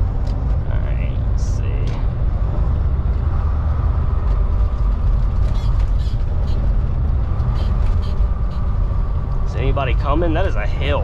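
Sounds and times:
truck engine and road noise: 0.0 - 11.0.

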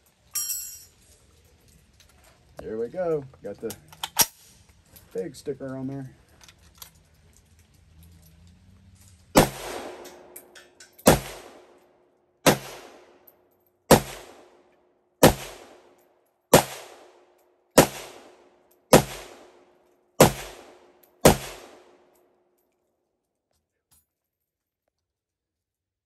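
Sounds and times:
rifle shots with echo: 9.4 - 11.8, 12.4 - 13.3, 13.9 - 22.1.

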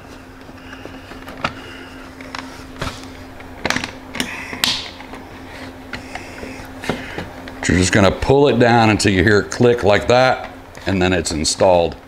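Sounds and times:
plastic clips snapping: 3.6 - 4.9.

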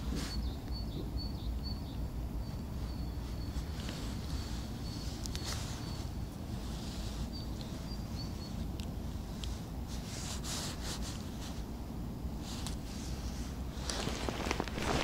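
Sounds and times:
steady low rumble: 0.0 - 15.0
hands and sleeves rustling: 2.5 - 11.8, 12.4 - 15.0.

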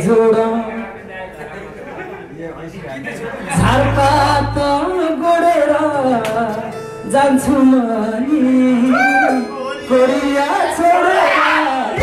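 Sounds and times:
guitar accompaniment: 3.5 - 10.9
person singing folk song: 3.6 - 12.0.

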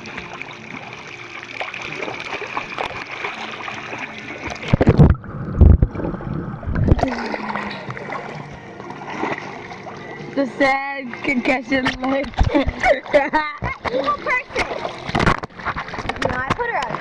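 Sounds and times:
pool water splashing: 0.0 - 17.0.

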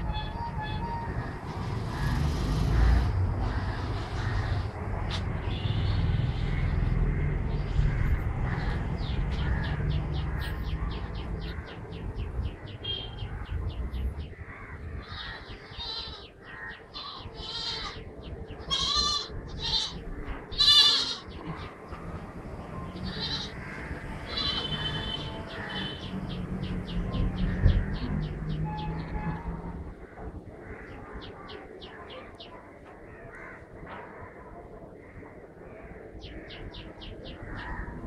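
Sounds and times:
loud animal calls: 18.7 - 21.6, 23.0 - 26.1.

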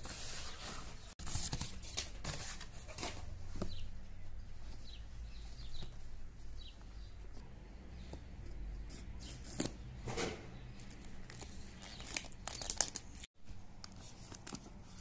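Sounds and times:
plastic wrap crinkling: 11.1 - 15.0.

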